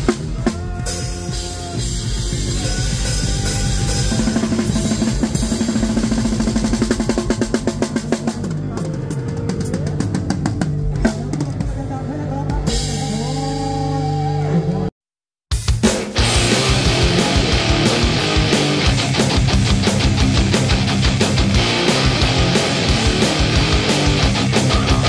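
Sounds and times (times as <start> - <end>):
drum rolls and fills: 0.0 - 13.5, 15.5 - 25.0
bending guitar notes: 16.2 - 25.0.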